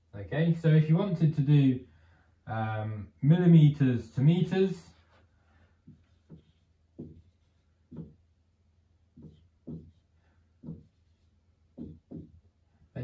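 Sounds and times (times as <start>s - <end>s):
marker pen tapping whiteboard: 5.8s - 8.3s, 9.1s - 12.5s.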